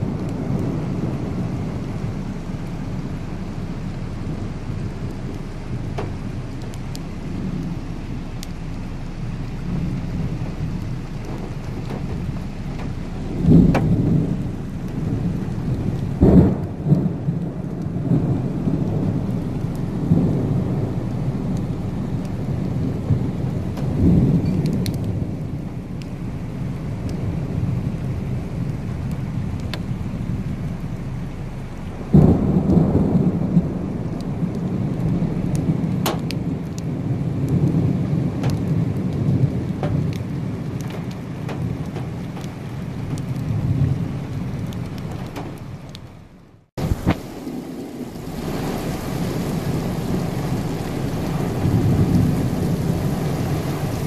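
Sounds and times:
steady rain: 0.0 - 54.0
thunder rumbling: 0.0 - 54.0.

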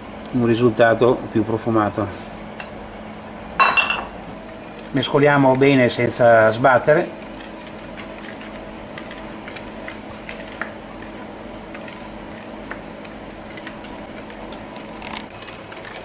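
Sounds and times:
steady background hum: 0.0 - 16.0
whisk ticking against glass bowl: 4.4 - 15.8.

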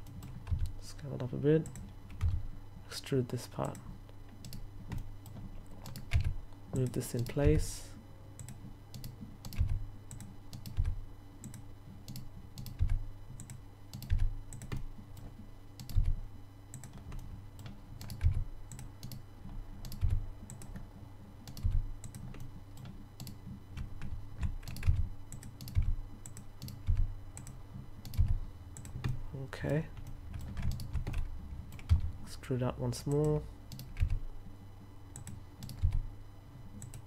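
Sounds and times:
keyboard keystrokes: 19.8 - 20.8, 21.4 - 29.2.

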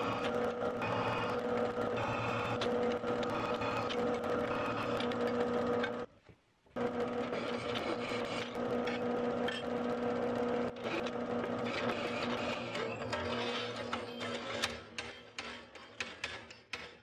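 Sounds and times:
drill press motor humming: 0.0 - 6.1, 6.8 - 13.9.

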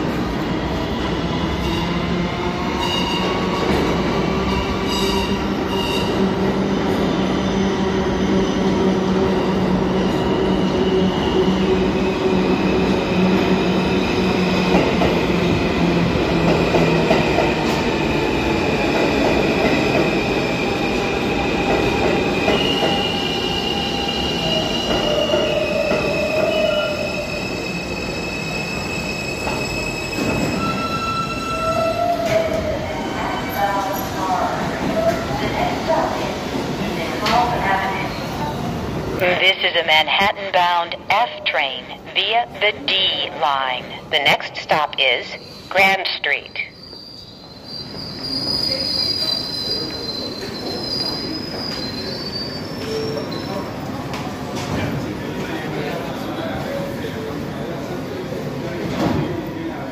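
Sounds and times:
high-pitched wheel squeal: 46.8 - 53.5.

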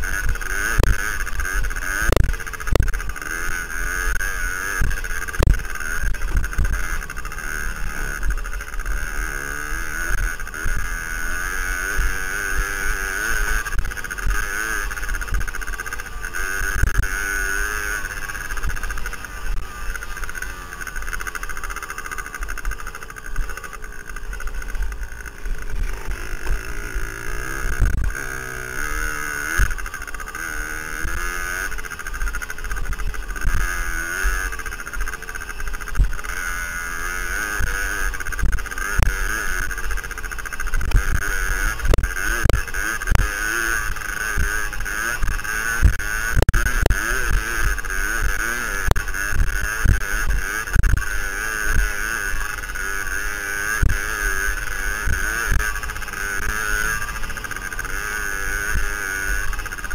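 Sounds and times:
two-stroke motorcycle engine: 0.0 - 59.9
low thumps from bumpy track: 2.0 - 3.2, 22.5 - 28.4.

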